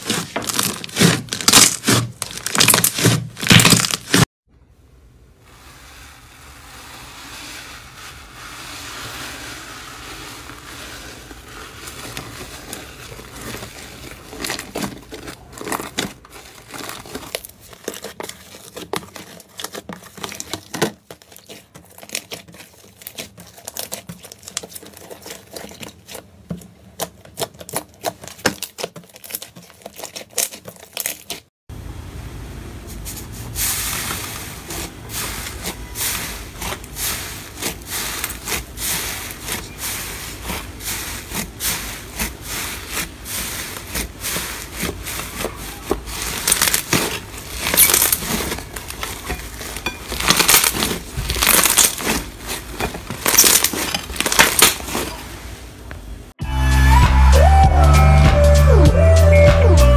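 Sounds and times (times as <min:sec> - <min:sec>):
slime stretched and squeezed: 0:00.0 - 0:04.2, 0:34.0 - 0:55.3
fluffy slime crackling: 0:00.0 - 0:04.3, 0:05.4 - 0:31.5, 0:32.9 - 0:56.4.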